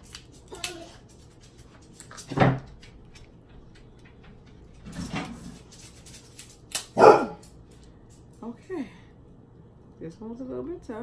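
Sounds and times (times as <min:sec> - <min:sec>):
shell clicking and crackling: 0:05.8 - 0:08.4.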